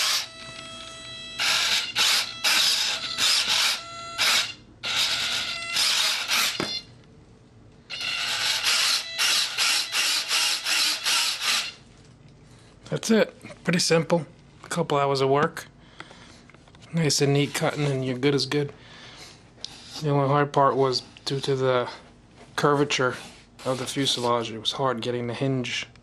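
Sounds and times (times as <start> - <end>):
servo buzzing whirs with gear whine: 0.0 - 6.8, 7.9 - 11.8.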